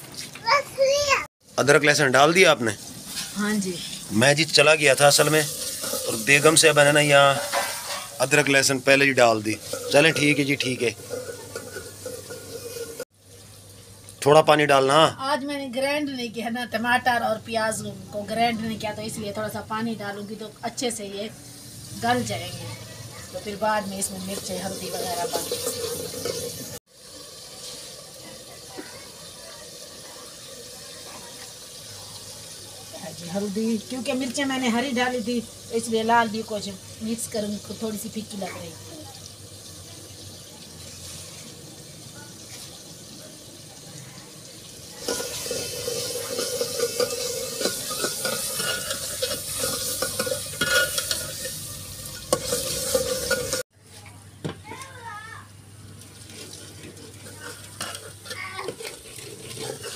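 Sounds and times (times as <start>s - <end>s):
masala simmering and sizzling in a pot: 0.0s - 59.9s
metal ladle scraping pot: 5.2s - 13.0s, 24.0s - 26.8s, 45.0s - 53.6s, 56.2s - 59.9s.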